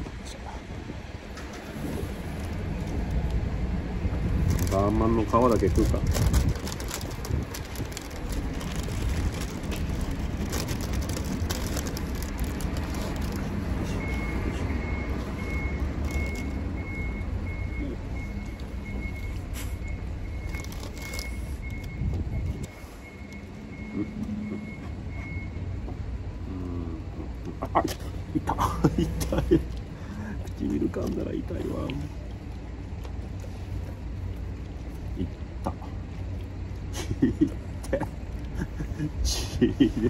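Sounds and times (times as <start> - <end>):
vehicle engine rumble: 0.0 - 40.0
reversing alarm beeping: 13.9 - 25.7.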